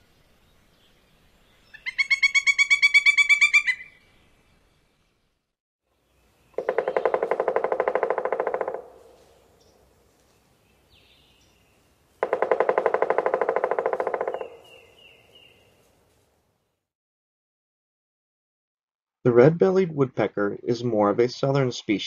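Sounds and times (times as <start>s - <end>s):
woodpecker drumming on wood: 6.5s - 9.2s, 12.2s - 14.9s.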